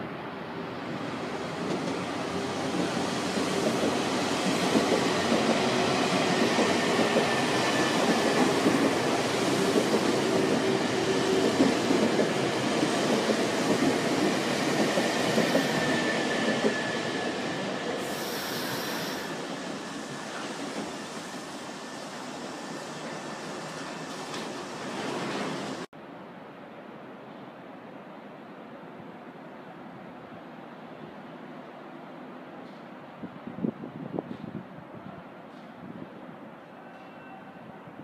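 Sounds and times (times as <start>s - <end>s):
electric train wheels rumbling: 0.8s - 25.9s
brief high hiss: 18.0s - 19.4s.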